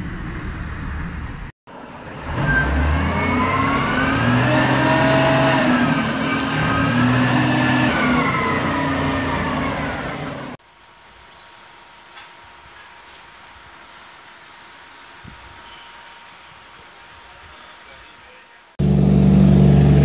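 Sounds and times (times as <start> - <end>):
truck engine revving: 0.0 - 10.6, 18.8 - 20.0.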